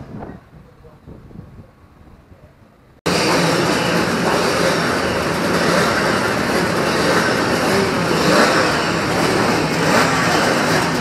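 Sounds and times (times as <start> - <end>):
racing motorcycle engines running: 3.1 - 11.0.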